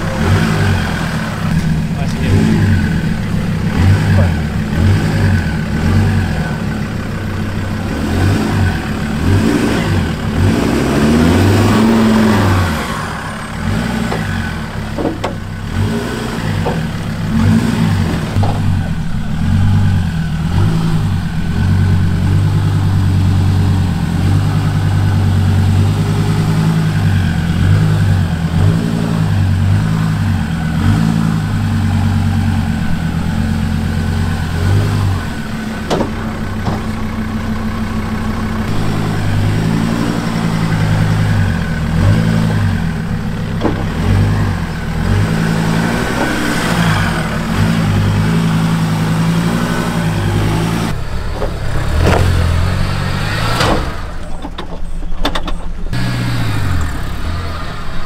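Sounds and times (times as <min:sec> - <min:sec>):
truck engines revving: 0:00.0 - 0:58.0
knocks and bumps: 0:14.0 - 0:15.8, 0:16.5 - 0:23.4, 0:32.7 - 0:37.2, 0:38.7 - 0:56.0.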